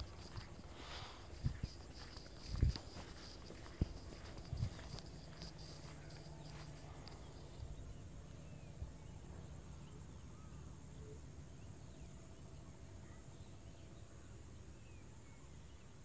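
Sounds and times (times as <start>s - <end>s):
footsteps: 0.0s - 7.7s
high insect calls: 0.0s - 16.0s.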